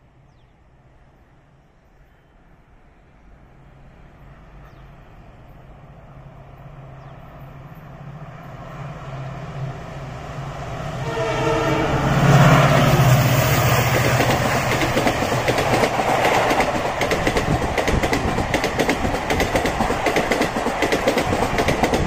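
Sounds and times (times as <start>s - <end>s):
diesel locomotive passing: 0.0s - 22.0s
train horn: 10.9s - 12.8s.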